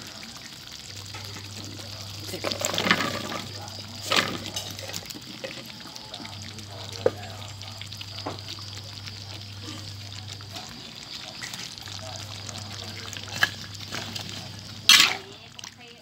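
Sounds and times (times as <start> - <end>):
food splashing into a wok: 0.0 - 5.8, 9.6 - 15.9.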